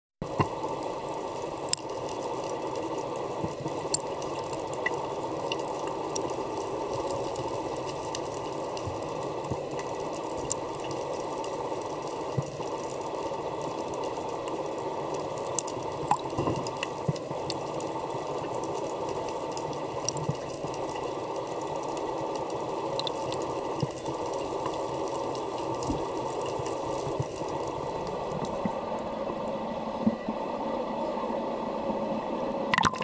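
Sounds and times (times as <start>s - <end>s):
sharp clicks and pops: 0.2s - 0.8s, 15.1s - 28.7s, 32.7s - 33.0s
muffled underwater rush: 0.2s - 33.0s.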